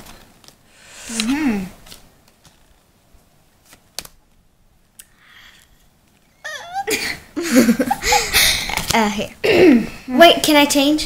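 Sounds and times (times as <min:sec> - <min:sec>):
playing cards clicking: 0:00.0 - 0:02.8, 0:03.6 - 0:04.2
cards rustling: 0:00.0 - 0:02.9, 0:03.6 - 0:04.4
girl's voice: 0:06.4 - 0:07.1, 0:08.8 - 0:11.0.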